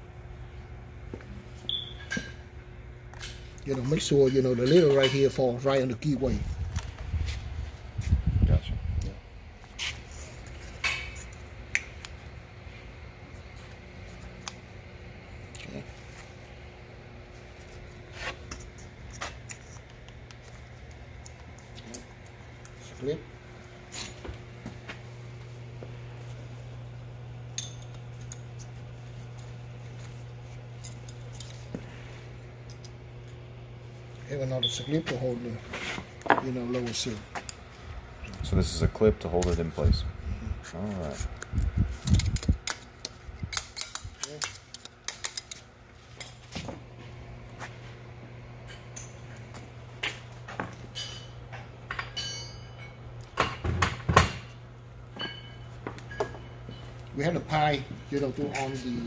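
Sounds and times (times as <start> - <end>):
steady low hum: 0.0 - 59.0
metal tools clinking: 3.1 - 5.9, 50.9 - 53.0.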